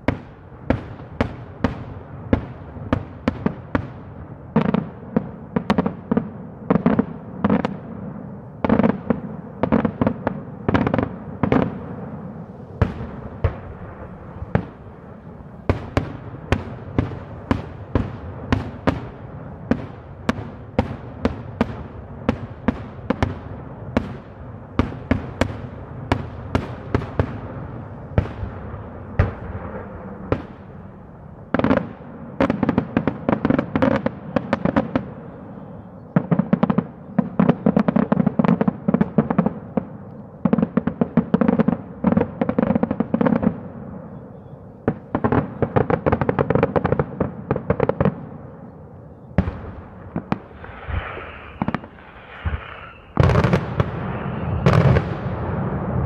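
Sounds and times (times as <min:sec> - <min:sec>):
fireworks bursting in bangs: 0:00.0 - 0:35.2, 0:49.4 - 0:56.0.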